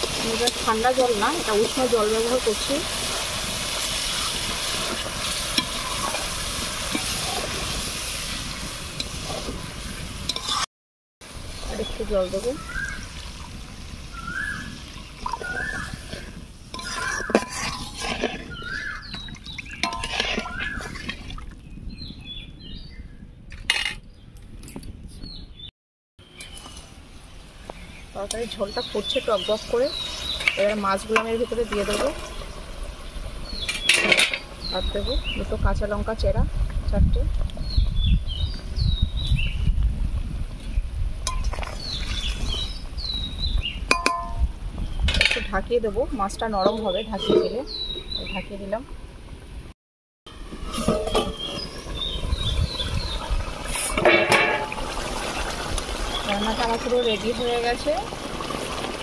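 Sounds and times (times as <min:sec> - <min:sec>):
spatula stirring: 0:10.3 - 0:10.7, 0:15.6 - 0:21.2
small birds chirping: 0:11.5 - 0:13.2, 0:14.1 - 0:21.0, 0:27.6 - 0:31.7, 0:46.2 - 0:48.7, 0:51.1 - 0:53.4
curry bubbling in a pan: 0:12.7 - 0:21.2
bird calling: 0:14.1 - 0:16.2, 0:16.8 - 0:21.0
water poured into a pan: 0:50.6 - 0:59.0.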